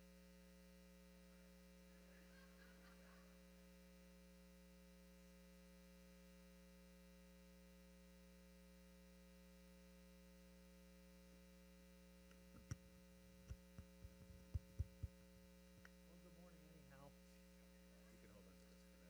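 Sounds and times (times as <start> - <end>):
electrical mains hum: 0.0 - 19.0
microphone handling thumps: 13.5 - 15.2.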